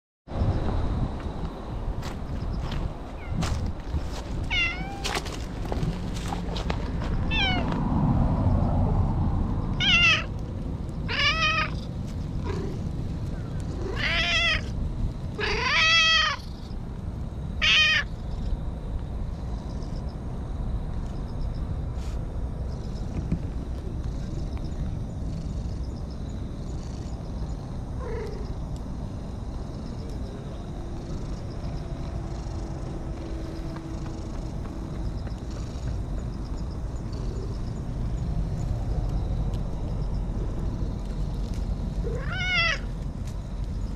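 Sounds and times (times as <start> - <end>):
cat meowing: 4.5 - 5.2, 7.3 - 7.7, 9.8 - 10.3, 11.1 - 11.8, 13.8 - 14.7, 15.4 - 16.5, 17.6 - 18.1, 42.0 - 42.9
cat purring: 11.8 - 14.0, 36.9 - 37.8.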